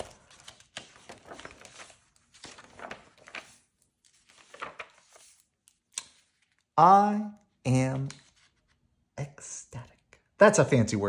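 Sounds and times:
book pages turning: 0:00.0 - 0:06.8, 0:07.7 - 0:08.9.

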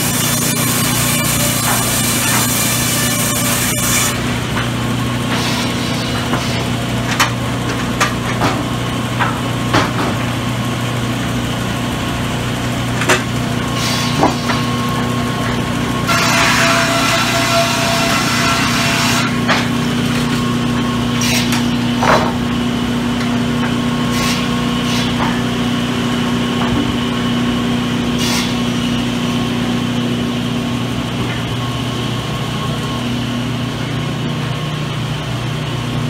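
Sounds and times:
blade cutting through wood: 0:00.0 - 0:04.2
machinery motor hum: 0:00.0 - 0:36.0.

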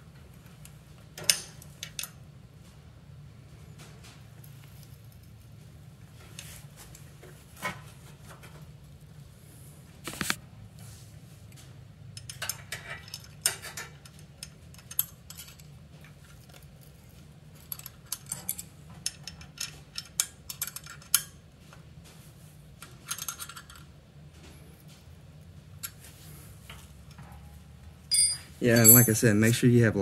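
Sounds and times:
wrench and bolts clinking on metal: 0:12.2 - 0:17.0, 0:17.6 - 0:21.4, 0:28.1 - 0:29.4.

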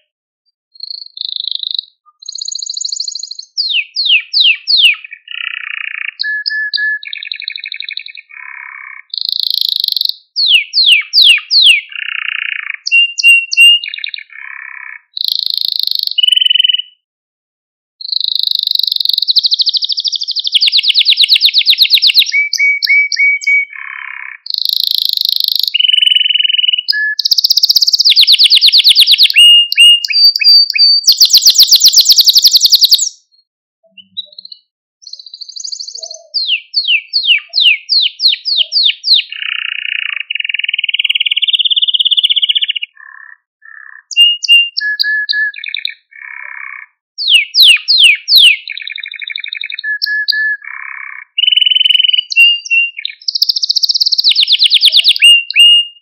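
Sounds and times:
canary singing: 0:00.7 - 0:17.0, 0:18.0 - 0:56.0.

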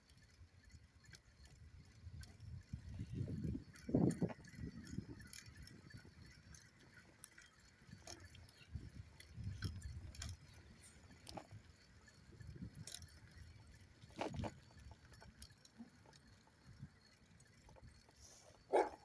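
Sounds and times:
bicycle clicks and rattles: 0:00.0 - 0:19.0
wind buffeting microphone: 0:01.7 - 0:07.0, 0:07.8 - 0:15.0.

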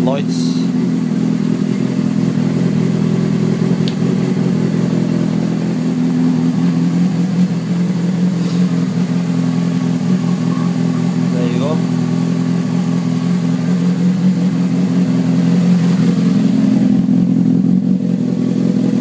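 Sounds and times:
motorcycle engine idling: 0:00.0 - 0:19.0.

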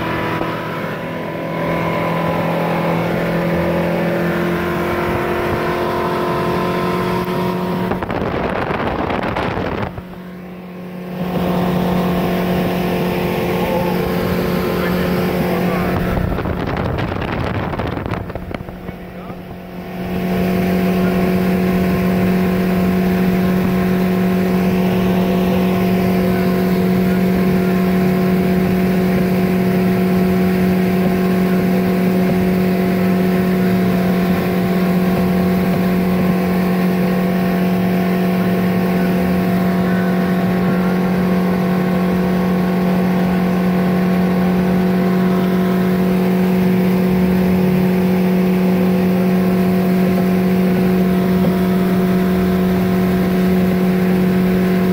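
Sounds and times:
outboard motor running: 0:00.0 - 0:54.9.

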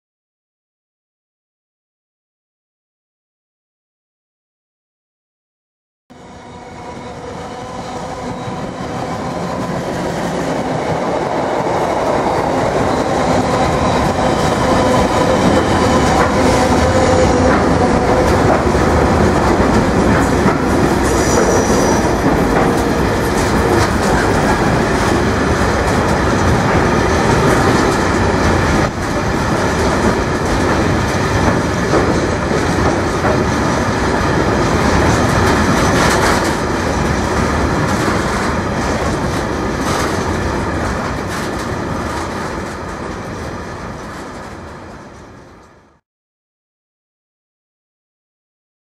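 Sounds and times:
diesel locomotive passing: 0:06.1 - 0:45.7
wagons rumbling and clacking: 0:12.7 - 0:43.1
high wheel squeal: 0:21.0 - 0:22.9.

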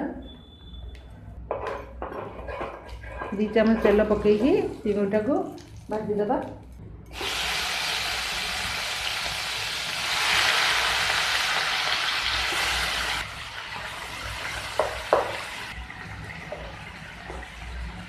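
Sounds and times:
prawns sizzling in oil: 0:07.1 - 0:18.0.

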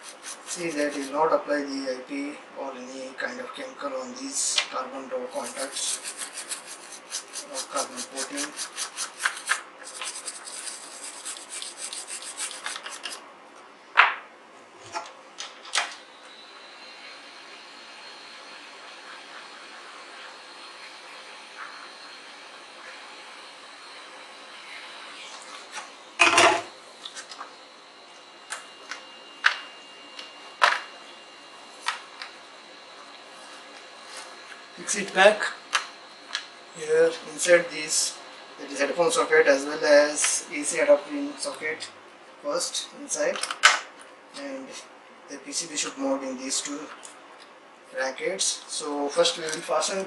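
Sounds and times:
brush scrubbing circuit board: 0:00.0 - 0:01.3, 0:05.2 - 0:13.2.

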